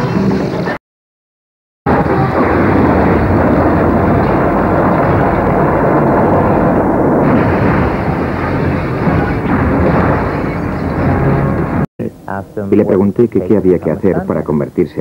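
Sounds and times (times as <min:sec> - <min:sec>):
explosion and fire rumbling: 0:01.9 - 0:11.9.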